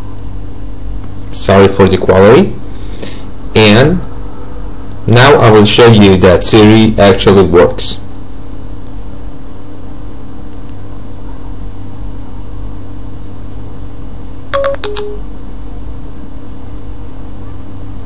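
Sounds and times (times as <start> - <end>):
low electrical hum: 0.0 - 18.0
two-note electronic chime: 14.6 - 15.3.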